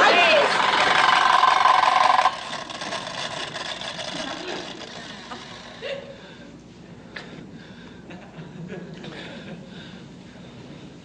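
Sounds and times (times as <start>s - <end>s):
toy blaster electronic buzz: 0.3s - 5.7s
audience laughter: 4.0s - 6.2s.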